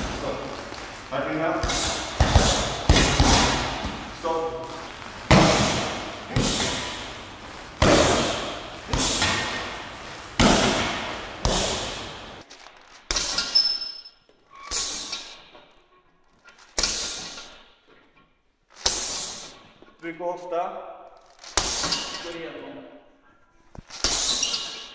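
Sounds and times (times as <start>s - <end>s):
punches thudding on heavy bag: 1.5s - 4.1s, 5.3s - 7.1s, 7.8s - 12.3s.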